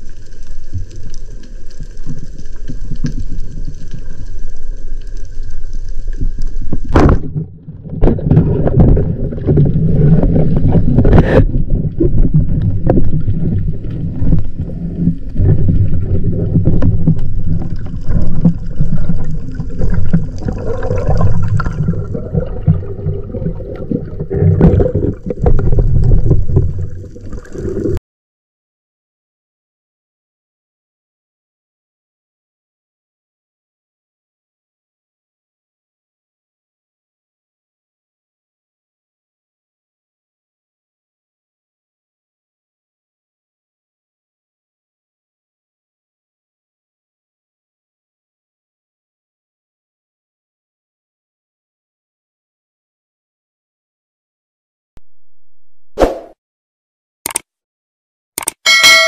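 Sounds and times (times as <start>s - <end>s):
water rushing and bubbling: 0.0s - 28.0s.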